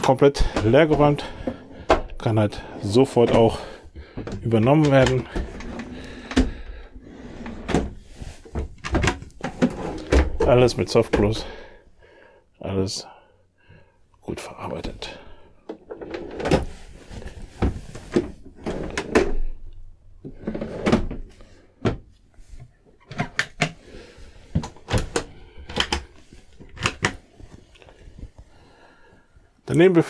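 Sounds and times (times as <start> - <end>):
drawer runners sliding: 0.4 - 11.5, 15.8 - 19.6, 20.3 - 21.4.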